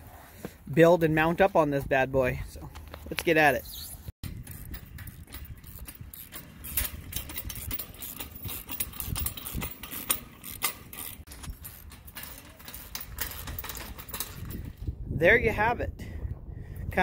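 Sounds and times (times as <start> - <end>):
metallic clicks and clinks: 4.2 - 14.8.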